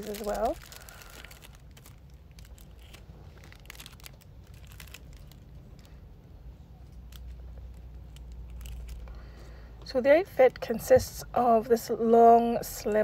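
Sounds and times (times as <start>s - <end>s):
plastic bags crinkling: 0.0s - 6.1s, 6.9s - 9.2s.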